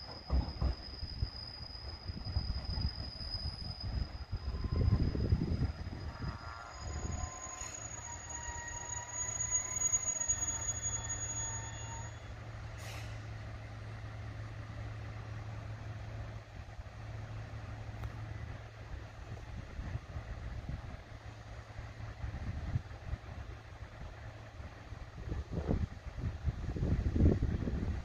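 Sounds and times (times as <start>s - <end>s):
train brakes squealing: 0.0s - 13.4s
short air hiss: 12.8s - 13.4s.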